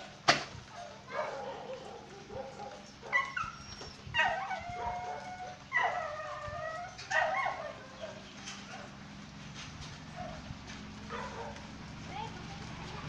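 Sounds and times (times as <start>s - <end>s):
dogs whining and yipping: 0.7s - 8.9s.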